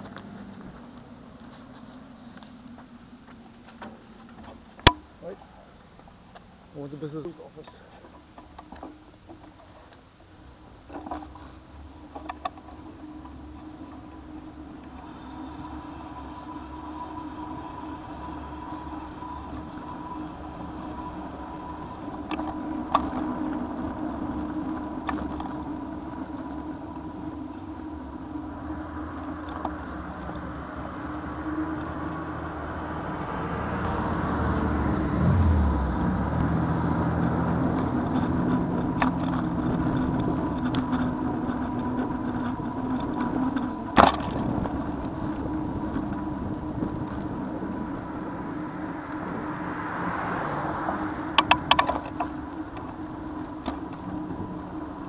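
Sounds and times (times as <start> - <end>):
road traffic: 0.0 - 55.0
motor vehicle engine passing: 11.0 - 55.0.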